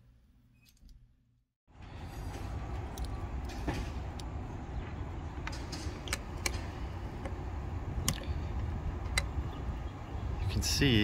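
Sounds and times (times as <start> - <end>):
traffic rumble: 1.7 - 11.0.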